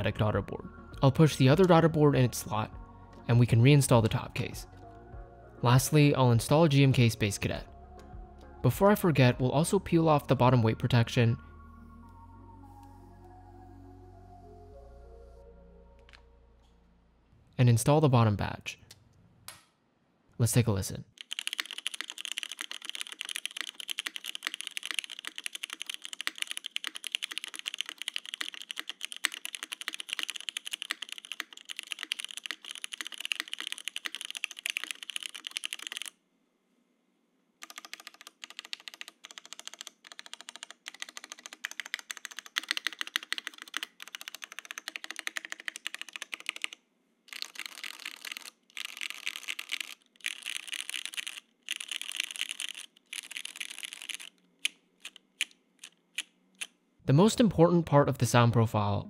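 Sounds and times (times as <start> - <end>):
typing on mechanical keyboard: 21.2 - 36.2, 37.6 - 56.7.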